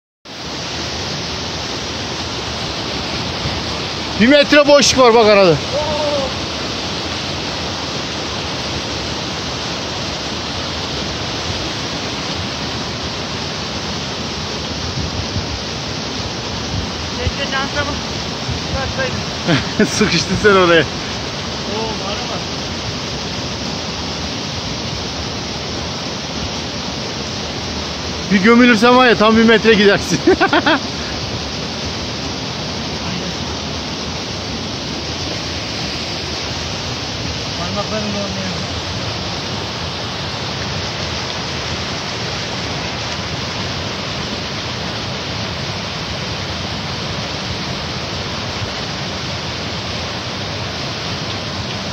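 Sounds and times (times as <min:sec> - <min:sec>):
waterfall rushing: 0:00.3 - 0:51.9
man's voice: 0:04.2 - 0:06.4, 0:18.7 - 0:20.9, 0:28.3 - 0:30.8.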